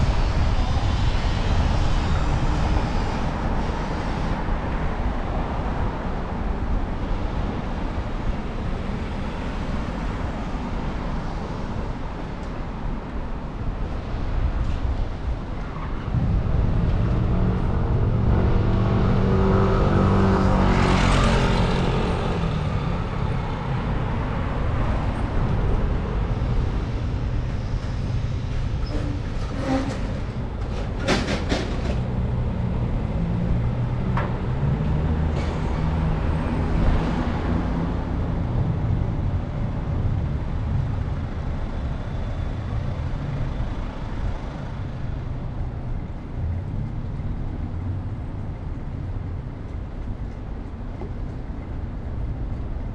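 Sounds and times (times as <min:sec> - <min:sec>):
road traffic rumble: 0:00.0 - 0:52.9
large vehicle passing: 0:15.9 - 0:30.6.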